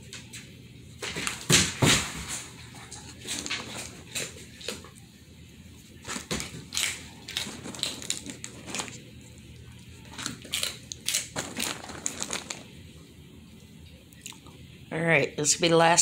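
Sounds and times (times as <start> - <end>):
dog crunching hard treat: 6.0 - 12.7.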